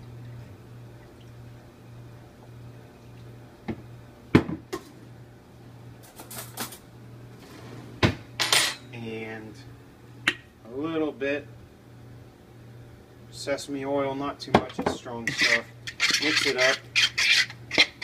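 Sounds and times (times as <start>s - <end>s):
steady low hum: 0.0s - 18.0s
bottles knocked on countertop: 4.4s - 4.7s.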